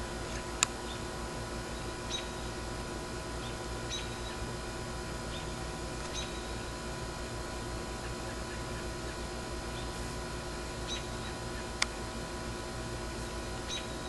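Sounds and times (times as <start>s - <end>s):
steady low hum: 0.0s - 14.0s
high bird chirps: 6.1s - 6.5s, 13.7s - 14.0s.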